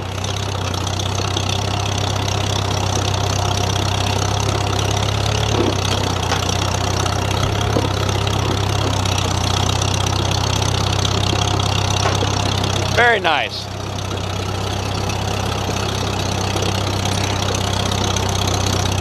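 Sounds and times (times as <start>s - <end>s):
tractor engine running: 0.0s - 19.0s.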